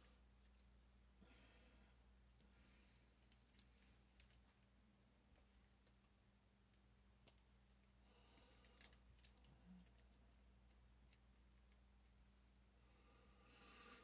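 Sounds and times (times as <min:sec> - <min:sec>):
low steady hum: 0:00.0 - 0:14.0
plastic parts rustling: 0:03.1 - 0:04.7.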